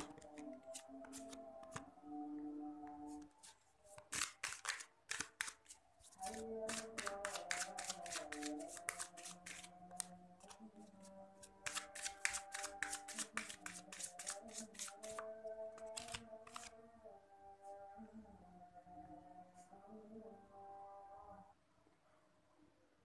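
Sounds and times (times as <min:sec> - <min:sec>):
cards being shuffled: 0:00.0 - 0:01.8, 0:03.2 - 0:16.7
soft background music: 0:00.0 - 0:04.2, 0:05.8 - 0:21.7.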